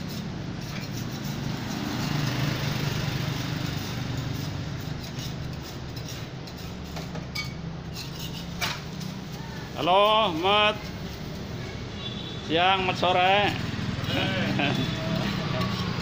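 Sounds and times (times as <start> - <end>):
engine running: 13.5 - 16.0.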